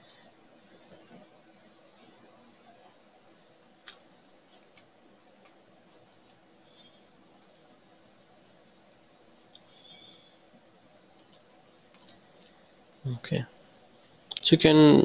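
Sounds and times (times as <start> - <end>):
faint steady hiss: 0.0 - 15.0
computer mouse clicks: 3.8 - 6.4, 7.4 - 7.7.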